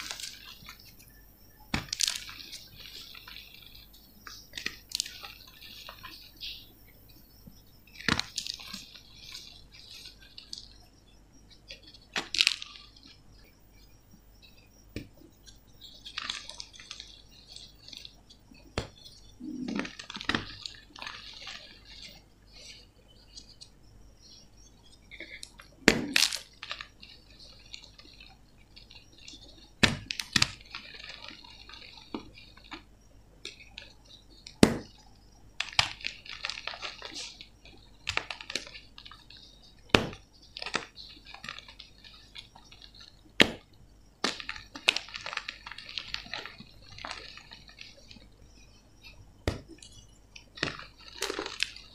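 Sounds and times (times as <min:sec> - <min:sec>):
hands crushing chalk: 0:01.7 - 0:06.6, 0:08.0 - 0:10.7, 0:35.6 - 0:37.4, 0:38.0 - 0:48.3, 0:49.4 - 0:51.9.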